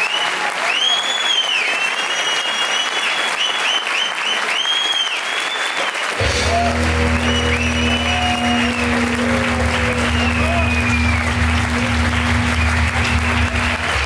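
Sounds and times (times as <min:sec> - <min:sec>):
audience applauding: 0:00.0 - 0:14.0
high whistles: 0:00.0 - 0:14.0
tango music low notes: 0:06.2 - 0:14.0.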